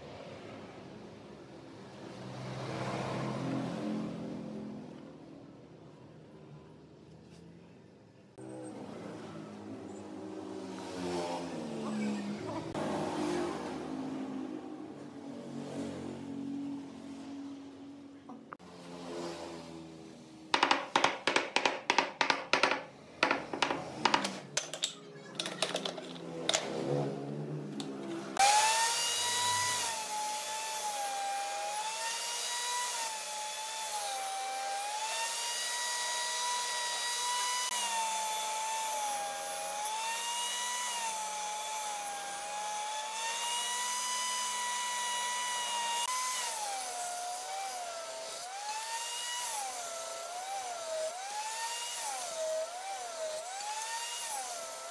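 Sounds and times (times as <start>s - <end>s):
wooden block knocking wood: 20.6s - 24.7s
table saw whine: 28.3s - 54.9s.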